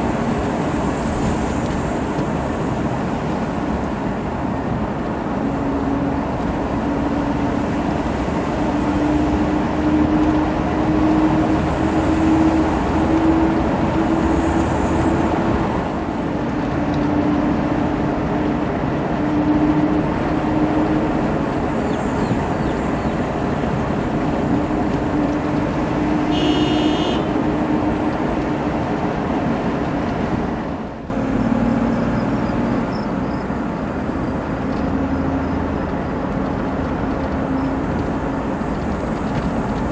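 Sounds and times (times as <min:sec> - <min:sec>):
vehicle engine and road noise: 0:00.0 - 0:39.9.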